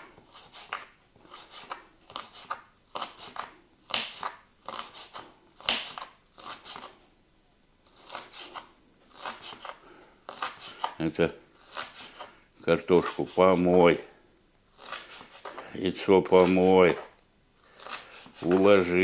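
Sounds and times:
knife cutting on a board: 0.0 - 6.9, 7.9 - 11.0, 11.6 - 12.3, 14.7 - 15.6, 16.2 - 19.0.

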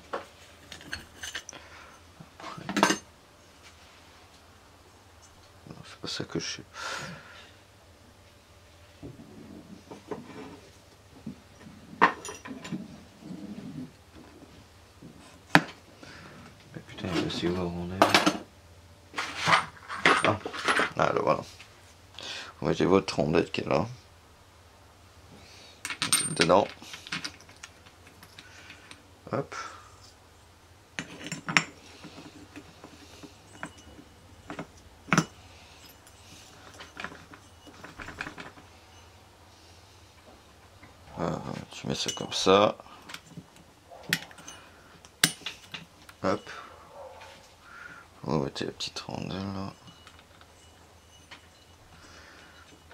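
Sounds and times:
metal clutch parts clinking: 0.6 - 1.6, 11.5 - 12.8, 25.9 - 29.0, 31.0 - 39.1, 41.6 - 46.7, 48.9 - 52.9
soft handling noise: 16.5 - 18.1, 40.1 - 47.6
metal parts clicking: 25.8 - 29.0.

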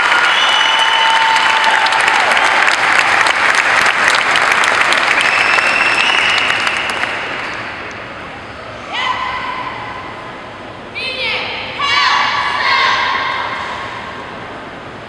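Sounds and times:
audience applauding: 0.0 - 7.9.

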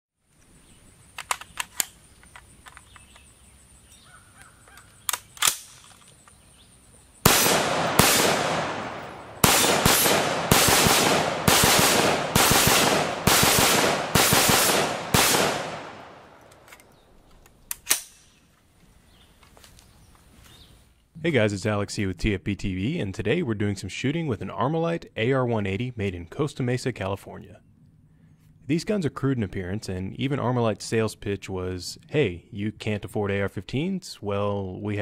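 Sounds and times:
metallic clicks of rifle handling: 1.1 - 3.3, 3.9 - 6.4, 15.4 - 18.4
rifle shots echoing: 7.2 - 16.8.

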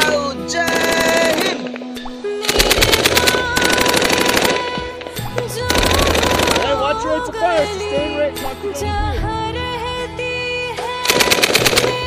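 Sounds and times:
background music: 0.0 - 12.0
machine-gun fire: 0.7 - 1.7, 2.5 - 4.9, 5.7 - 6.7, 11.0 - 12.0.

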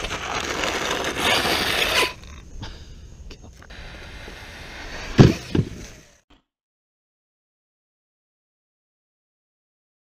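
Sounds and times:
rc car motor and tyres: 0.0 - 2.6, 3.5 - 6.2.

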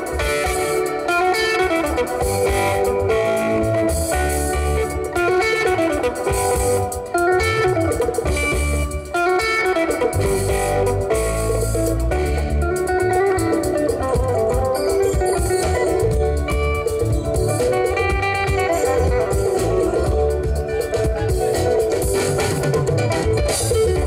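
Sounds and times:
electric guitar lines: 0.0 - 24.0
live band playing: 0.0 - 24.0.

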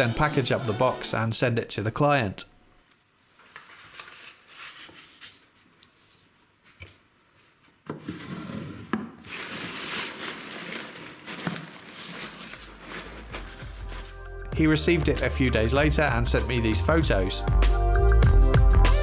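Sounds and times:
packing paper crinkling: 3.3 - 5.6, 9.2 - 14.2
paper card handled: 3.4 - 6.2, 9.3 - 14.2.

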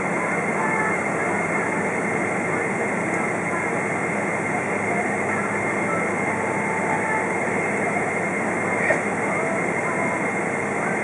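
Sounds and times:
faint high whine: 0.0 - 11.0
jet engines idling: 0.0 - 11.0.

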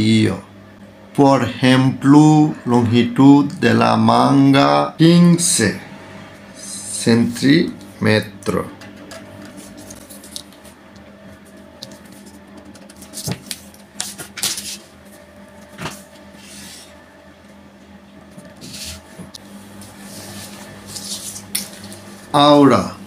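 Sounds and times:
steady low hum: 0.0 - 23.0
paper rustling: 9.1 - 16.9, 19.8 - 22.2.

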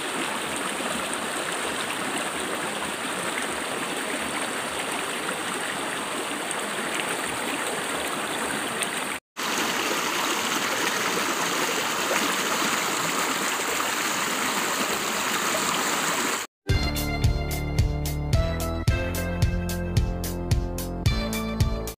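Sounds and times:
stream rushing over rocks: 0.0 - 16.5.

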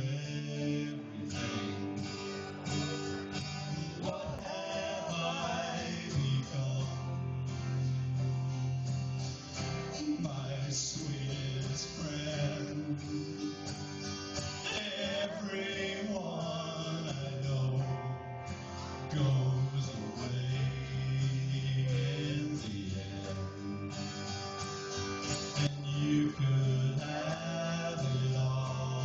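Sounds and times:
man singing: 0.0 - 7.6, 9.8 - 14.0, 14.6 - 18.3, 19.0 - 24.3, 25.6 - 29.0
guitar chords: 0.0 - 29.0.

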